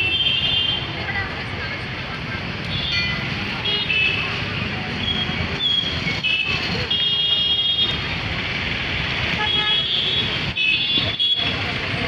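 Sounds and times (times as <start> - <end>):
street traffic rumbling: 0.0 - 12.0
vehicle horns tooting: 6.2 - 8.1, 9.3 - 11.6.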